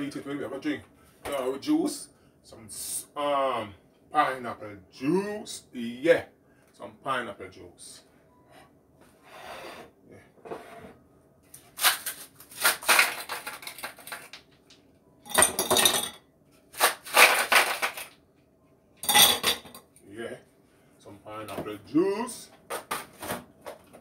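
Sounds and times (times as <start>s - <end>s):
ice cubes cracking from plastic tray: 11.8s - 14.4s, 16.8s - 18.2s
ice cubes clattering into glass: 12.6s - 14.3s, 17.1s - 18.1s, 19.0s - 19.7s.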